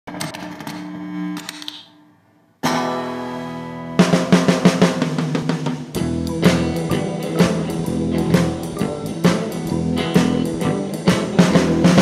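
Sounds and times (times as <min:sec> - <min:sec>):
rock band playing: 0:02.6 - 0:12.0
held chord ringing: 0:06.0 - 0:12.0.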